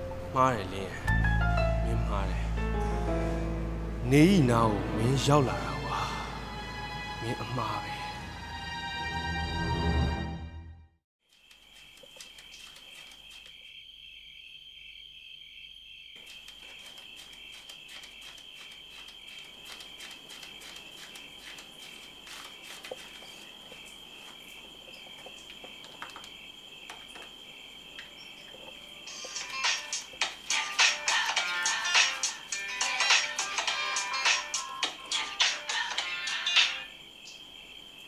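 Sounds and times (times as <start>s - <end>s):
crickets trilling: 11.3s - 38.0s.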